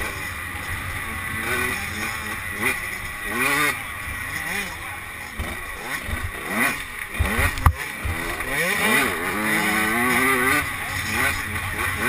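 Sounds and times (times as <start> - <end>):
motorbike engine revving: 0.0 - 12.0.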